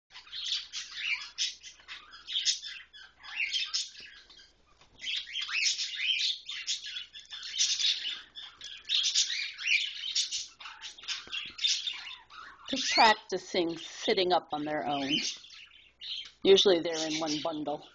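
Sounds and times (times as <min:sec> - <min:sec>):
chicks cheeping: 0:00.1 - 0:13.9, 0:14.6 - 0:17.9.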